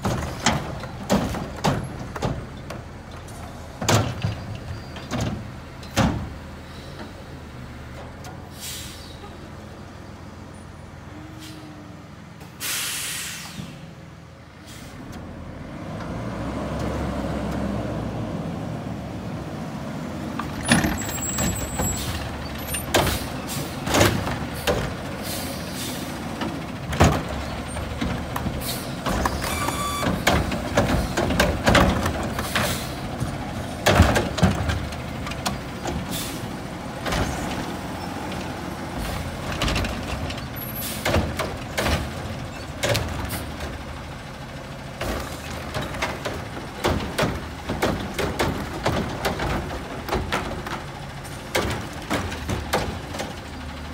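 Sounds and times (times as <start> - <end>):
carts banging and clattering: 0.0 - 7.2, 20.3 - 53.9
garbage truck engine running: 15.2 - 53.9.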